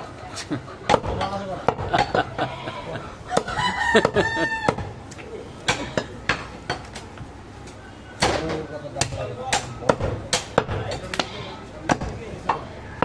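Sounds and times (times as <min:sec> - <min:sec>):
rooster crowing: 0:02.6 - 0:04.9.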